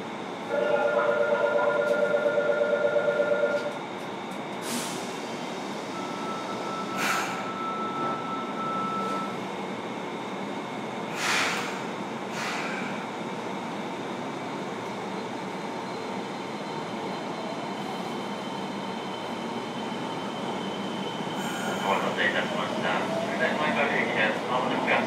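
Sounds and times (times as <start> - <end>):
subway car rumble: 0.0 - 25.0
short hisses: 11.2 - 12.9.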